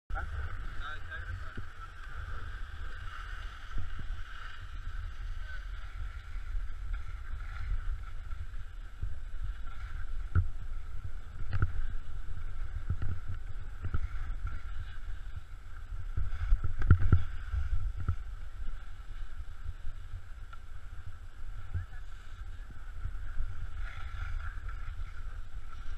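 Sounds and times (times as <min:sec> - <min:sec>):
wind buffeting microphone: 0:00.1 - 0:25.9.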